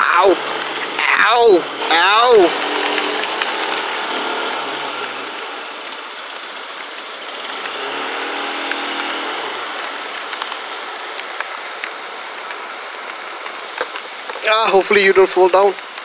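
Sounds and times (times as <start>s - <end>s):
motorcycle engine running: 0.0s - 11.7s
rain and wind hiss: 0.0s - 16.0s.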